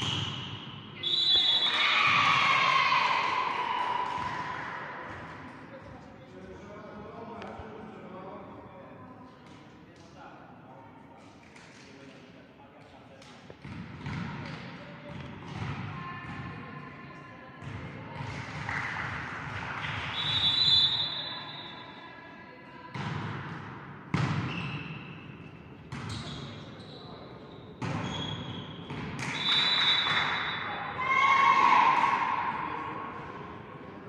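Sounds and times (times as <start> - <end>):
players shouting: 1.4 - 4.9, 30.2 - 33.2.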